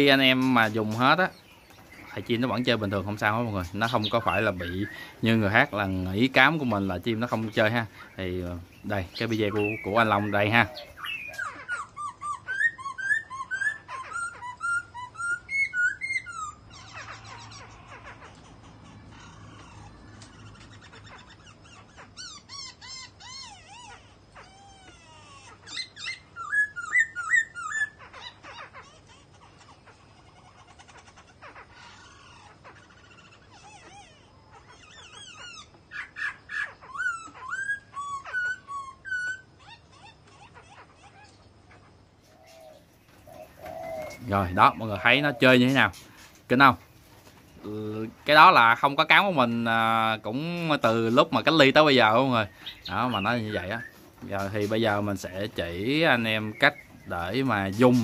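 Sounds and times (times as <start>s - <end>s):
songbird singing: 0.0s - 58.0s
songbird whistling: 8.8s - 17.5s, 25.7s - 28.3s.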